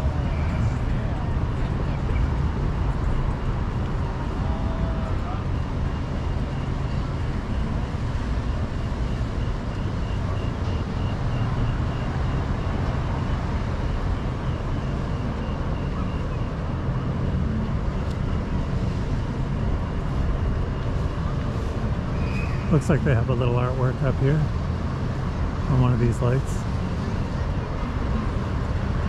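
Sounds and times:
traffic rumble: 0.0s - 29.0s
faint high-pitched beep: 4.6s - 12.8s.

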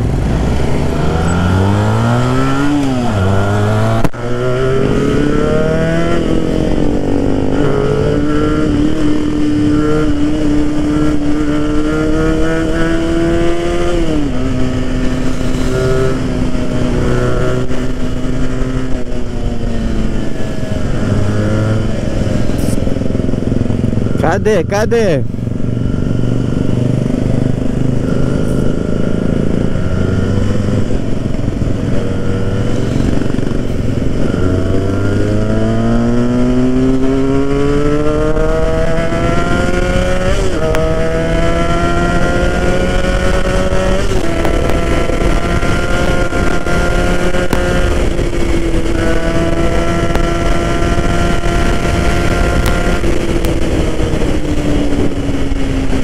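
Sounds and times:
motorcycle engine revving: 0.0s - 56.0s
wind noise: 25.3s - 56.0s.

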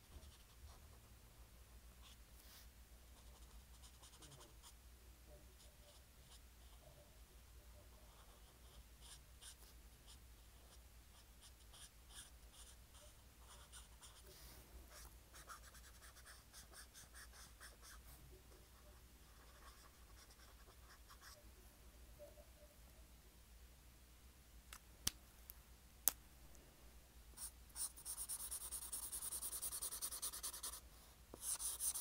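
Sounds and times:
pen scratching on paper: 0.1s - 0.6s, 3.2s - 4.7s, 8.0s - 18.0s, 18.6s - 21.4s, 27.4s - 30.8s, 31.4s - 32.0s.

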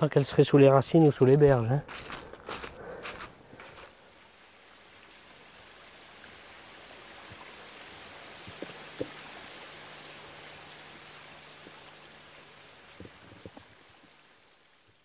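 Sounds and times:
flowing river water: 3.0s - 15.0s.

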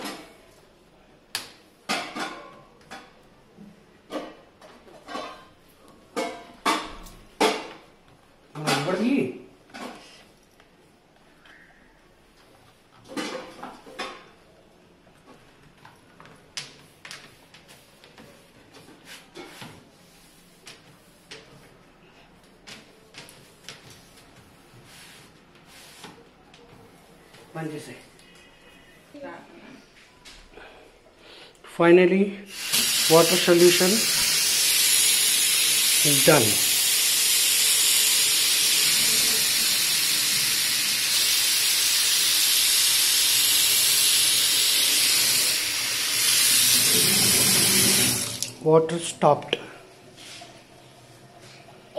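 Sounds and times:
tap water running into sink: 32.5s - 48.6s.

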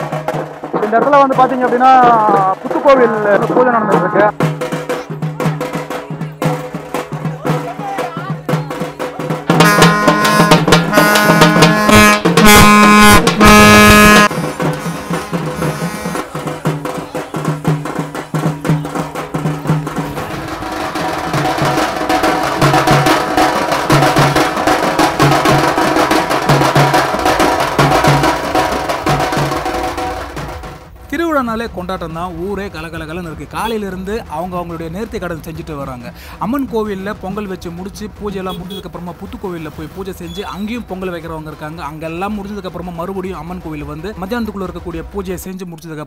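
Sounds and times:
fast dense drumming: 0.0s - 45.6s.

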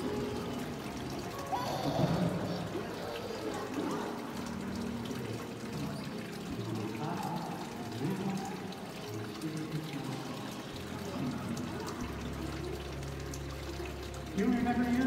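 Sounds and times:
water pouring and splashing: 0.0s - 15.0s.

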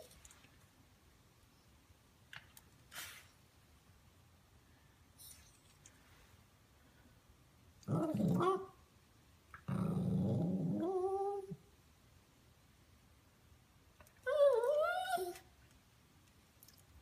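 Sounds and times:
puppy growling and whining: 7.9s - 8.8s, 9.6s - 11.6s, 14.2s - 15.4s.

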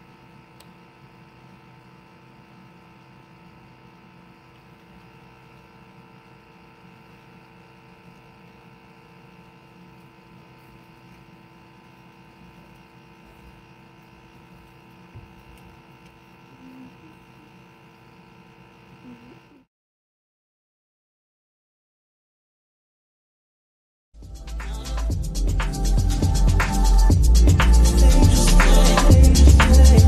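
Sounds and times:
faint steady hum: 0.0s - 19.7s.

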